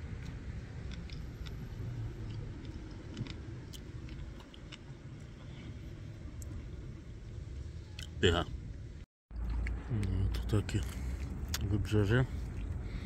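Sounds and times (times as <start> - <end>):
steady low rumble: 0.0 - 13.0
person chewing: 0.2 - 5.6, 10.8 - 11.7, 12.3 - 13.0.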